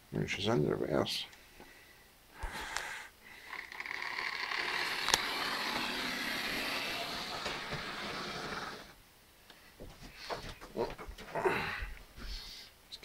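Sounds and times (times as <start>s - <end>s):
model train motor whirring: 3.4s - 9.0s.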